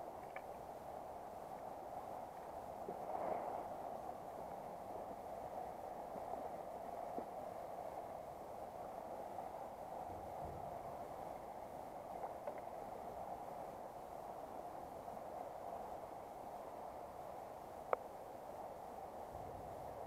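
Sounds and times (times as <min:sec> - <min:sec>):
faint ticks: 0:00.1 - 0:00.6, 0:12.1 - 0:12.8, 0:17.8 - 0:18.1.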